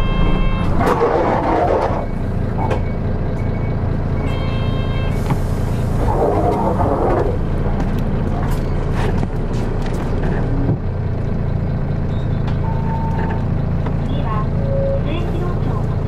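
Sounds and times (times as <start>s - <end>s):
electronic beeping tone: 0.0s - 0.8s
bus diesel engine running: 0.0s - 16.0s.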